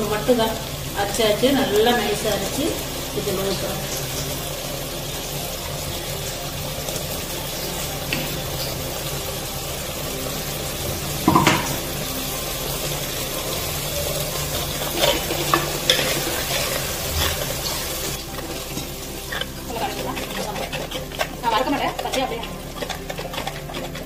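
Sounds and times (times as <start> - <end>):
curry sizzling in a pan: 0.0 - 24.0
spoon scraping a pan: 13.4 - 24.0.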